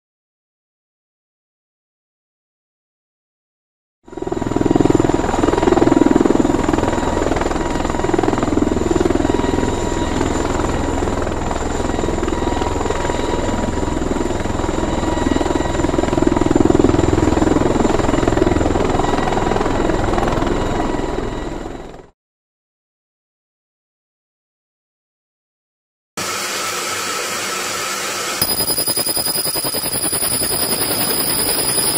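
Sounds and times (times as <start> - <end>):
high turbine whine: 26.2 - 31.9.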